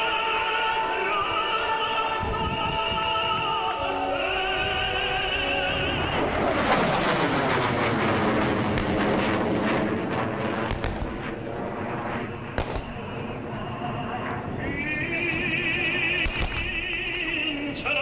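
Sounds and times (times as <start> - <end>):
opera music over loudspeakers: 0.0 - 6.4
jet roaring past: 0.0 - 18.0.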